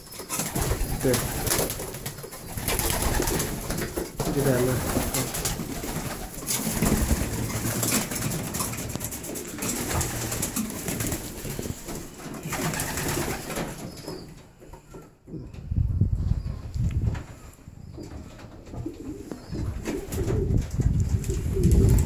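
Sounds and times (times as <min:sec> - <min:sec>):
wings clattering: 0:00.0 - 0:14.5
pigeons cooing: 0:00.0 - 0:15.5, 0:17.4 - 0:22.0.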